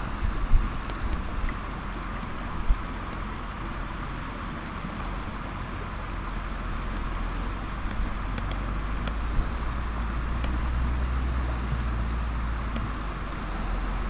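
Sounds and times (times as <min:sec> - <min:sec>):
stream flowing over gravel: 0:00.0 - 0:14.0
faint ticks: 0:07.8 - 0:09.3, 0:10.3 - 0:10.6, 0:12.7 - 0:13.0.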